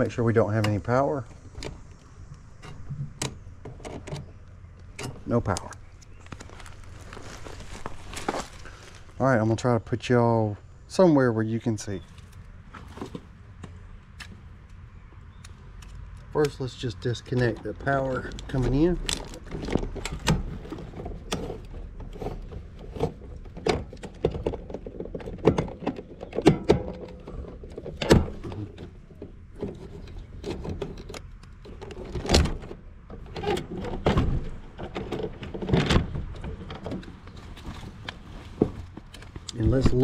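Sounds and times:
hand tools and wires clicking: 12.0 - 40.0.

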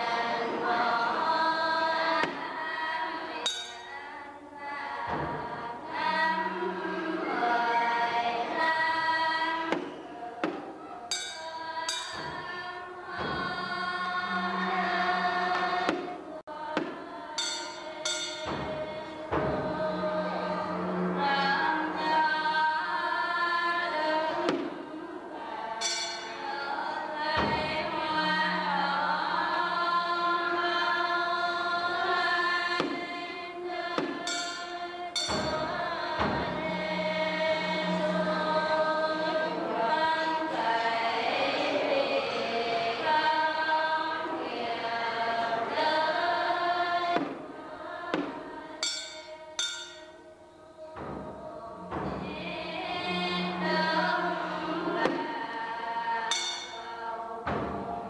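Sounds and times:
choir-like voices: 0.0 - 58.0
percussive strikes: 2.0 - 4.2, 5.0 - 7.0, 9.7 - 22.3, 24.2 - 29.9, 32.7 - 40.7, 45.5 - 58.0.

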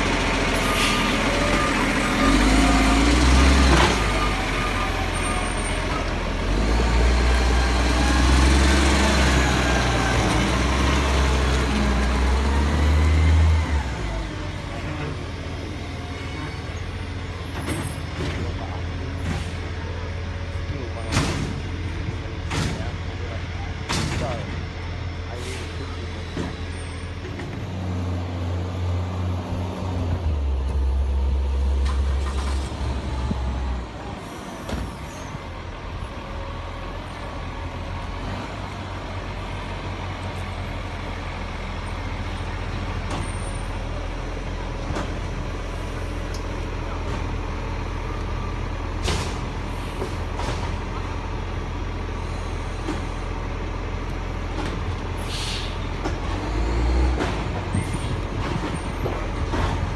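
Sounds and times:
diesel truck engine running: 0.0 - 59.9
air brake hisses: 55.2 - 55.9.

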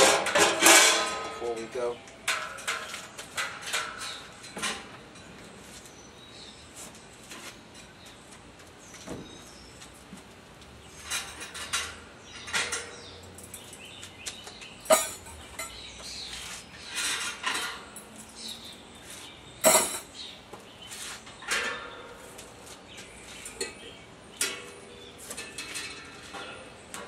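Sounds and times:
sharp metal bangs: 0.0 - 4.9, 14.8 - 15.8, 19.6 - 20.2
metal parts clanking: 11.0 - 13.7, 14.8 - 15.8, 19.6 - 20.1.

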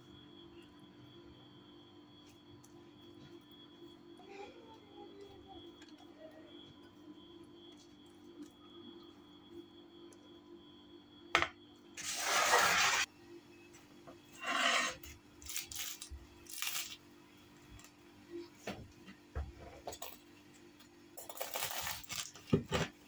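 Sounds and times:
pastry crust crunching: 21.2 - 22.6.

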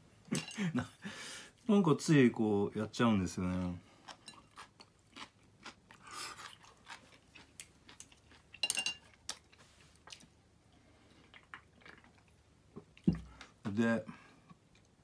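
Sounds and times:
person chewing crunchy food: 3.5 - 13.1.

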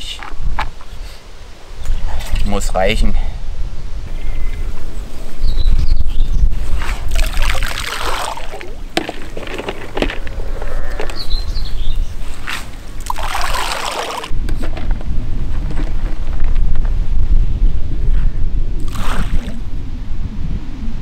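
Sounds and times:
wind rumble on microphone: 0.0 - 13.3, 14.2 - 21.0
faint bird chirping: 4.1 - 6.5, 10.6 - 12.2
grain rattling and rustling: 6.8 - 10.4.

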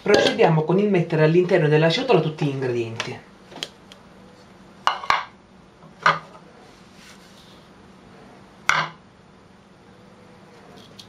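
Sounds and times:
dishes clinking: 0.0 - 0.5
knocks on ceramic bowl: 8.7 - 9.0.

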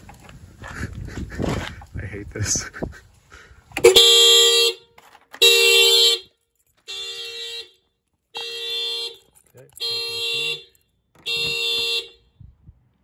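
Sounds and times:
car horn blasts: 3.8 - 12.6.

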